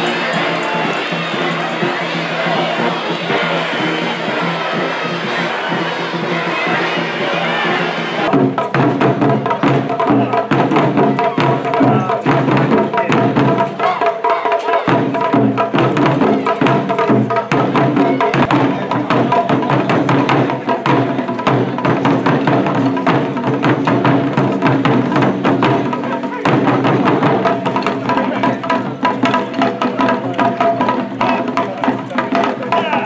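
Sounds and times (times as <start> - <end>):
sustained music tones: 0.0 - 8.3
drums beating driving rhythm: 0.0 - 33.0.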